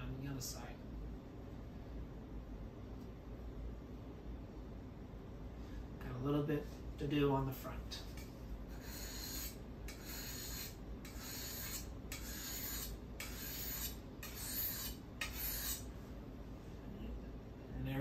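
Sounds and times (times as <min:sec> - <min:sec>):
knife scraping on whetstone: 0:08.7 - 0:15.9.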